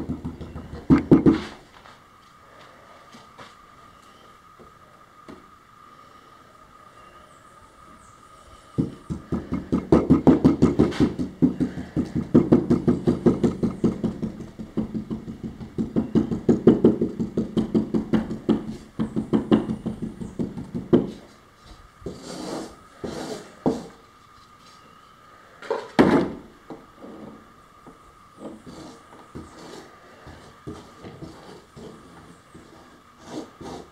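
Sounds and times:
knocks and handling noises: 0:00.0 - 0:02.0.

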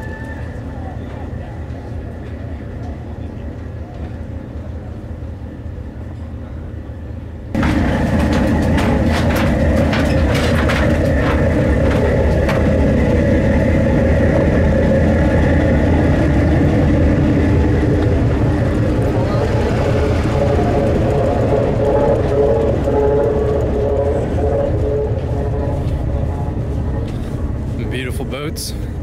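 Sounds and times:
boat engine idling: 0:07.6 - 0:29.0.

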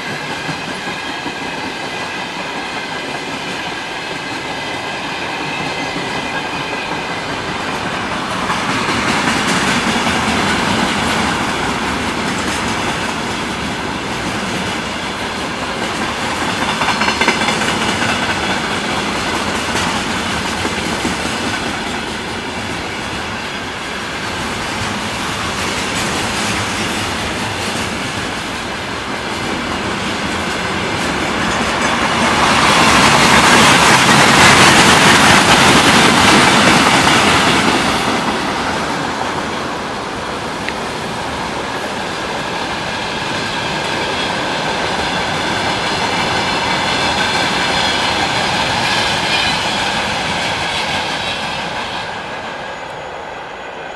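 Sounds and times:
wheels clacking over rail joints: 0:00.0 - 0:23.4
freight train rumbling past: 0:00.0 - 0:53.9.

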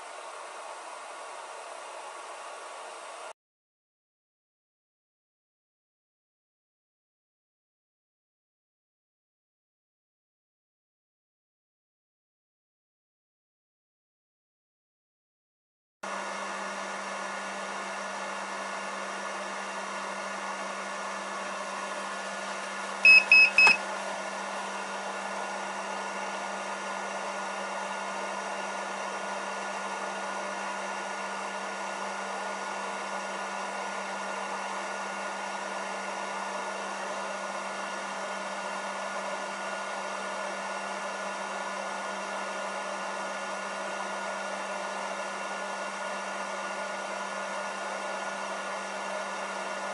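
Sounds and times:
charger cooling fan running: 0:00.0 - 0:03.3, 0:16.1 - 0:49.9
high-pitched charger beeps: 0:23.0 - 0:23.8.

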